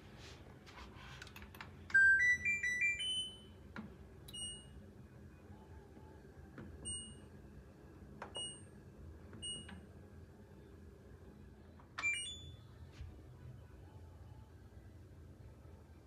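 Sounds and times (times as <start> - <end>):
washing machine beeps: 1.9 - 3.7, 4.3 - 4.8, 6.8 - 7.6, 8.2 - 9.9, 12.0 - 12.8.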